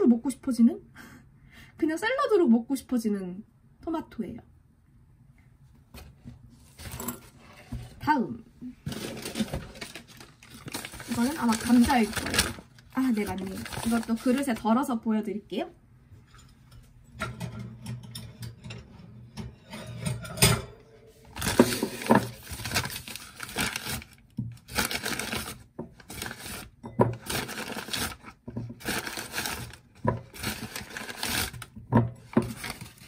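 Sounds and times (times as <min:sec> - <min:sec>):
paper bag rustling and crinkling: 0:08.8 - 0:14.7, 0:21.2 - 0:33.0.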